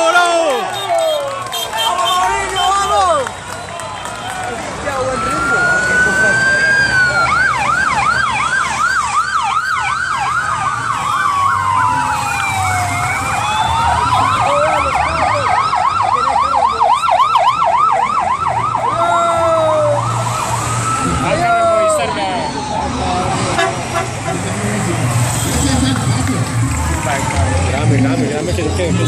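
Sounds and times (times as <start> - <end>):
slow wailing siren: 4.9 - 23.5
fast yelping siren: 5.1 - 23.2.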